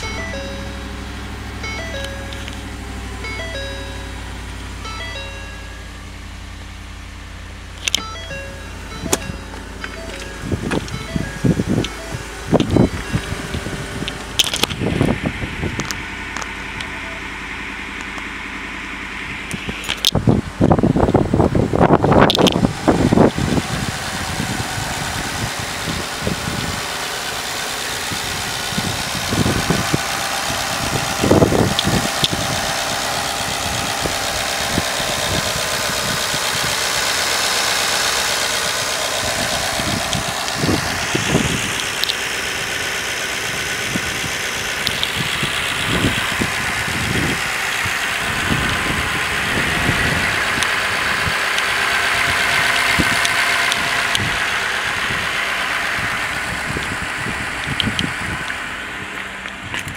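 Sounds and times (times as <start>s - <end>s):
engine idling up close: 0.0s - 59.9s
low thumps: 7.1s - 17.4s.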